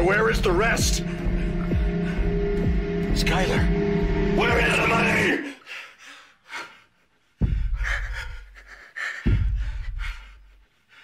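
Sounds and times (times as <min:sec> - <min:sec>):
deep booms: 0:00.0 - 0:05.2
man gasping and breathing heavily: 0:05.4 - 0:11.0.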